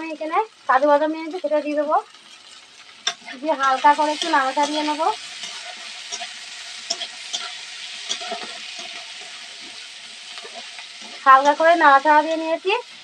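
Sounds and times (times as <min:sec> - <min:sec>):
food sizzling in hot oil: 0:00.0 - 0:13.0
metal spatula scraping pan: 0:02.3 - 0:12.5.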